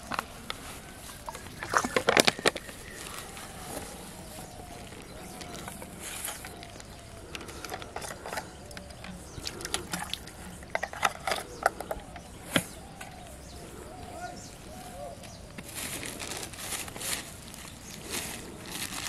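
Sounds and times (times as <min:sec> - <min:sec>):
plastic clicking and crinkling: 0:00.0 - 0:13.4.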